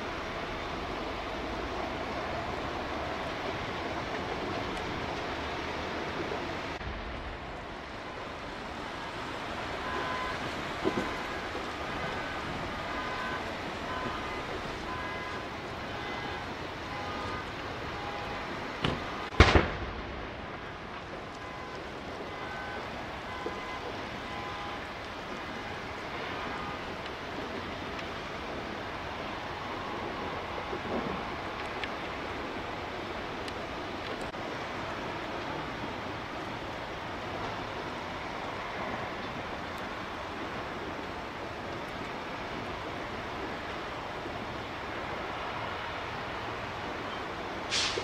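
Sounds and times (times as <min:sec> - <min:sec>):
fire scene noise: 0:00.0 - 0:48.0
loud bangs: 0:18.8 - 0:20.8.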